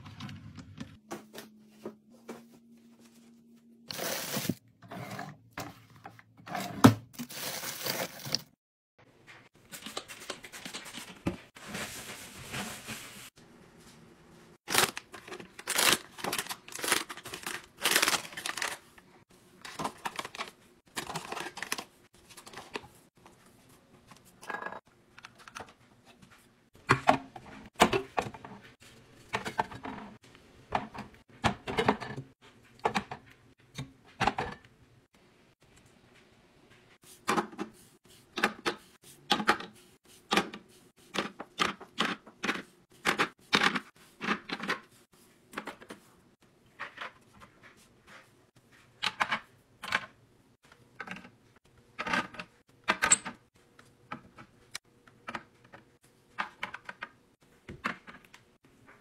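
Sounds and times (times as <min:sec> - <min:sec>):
packet rustling: 0:14.7 - 0:19.0.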